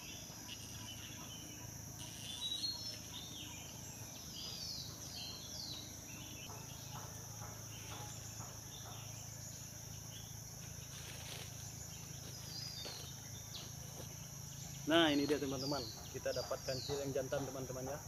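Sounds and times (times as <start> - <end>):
high-pitched insect chorus: 0.0 - 18.0
rustling of dry leaves: 10.6 - 15.8.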